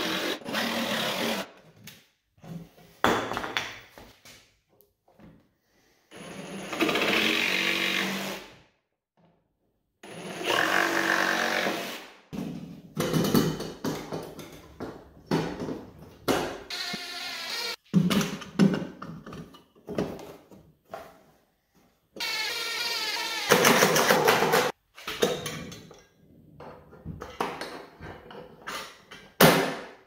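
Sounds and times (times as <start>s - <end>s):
jigsaw cutting plywood: 0.0s - 1.5s, 6.2s - 8.6s, 10.0s - 12.1s.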